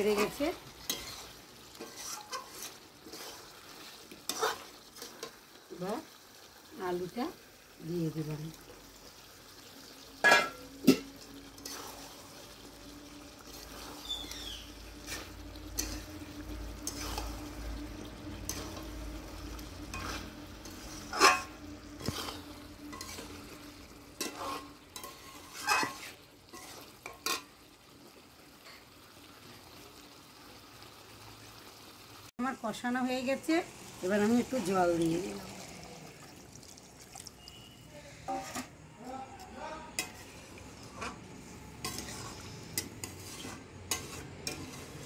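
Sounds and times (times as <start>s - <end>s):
metal spatula scraping a pan: 0.0s - 5.4s, 10.2s - 27.5s, 37.6s - 38.9s, 39.9s - 45.0s
low sizzle of frying: 0.0s - 45.0s.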